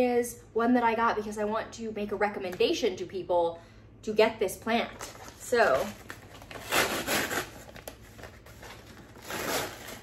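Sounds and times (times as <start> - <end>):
kraft paper tearing and rustling: 5.0 - 10.0.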